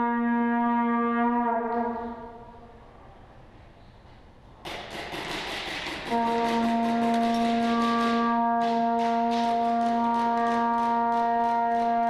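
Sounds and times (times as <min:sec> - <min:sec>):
long horn blast: 0:00.0 - 0:02.8, 0:06.1 - 0:12.0.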